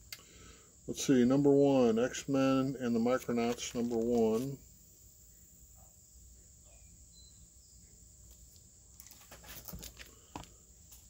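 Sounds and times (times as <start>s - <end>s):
faint insect trill: 0.0s - 11.0s
comic books rustling: 3.4s - 4.6s, 9.0s - 10.5s.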